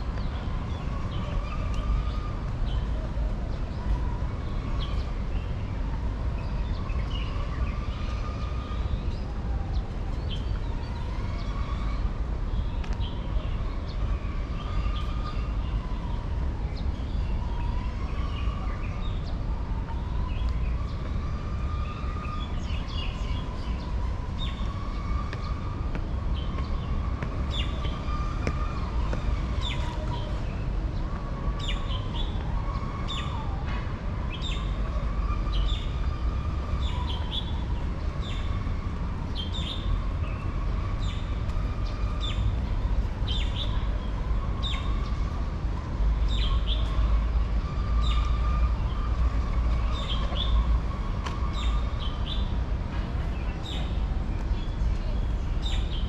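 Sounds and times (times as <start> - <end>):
birds chirping: 16.8 - 33.6, 34.3 - 52.5, 53.3 - 56.0.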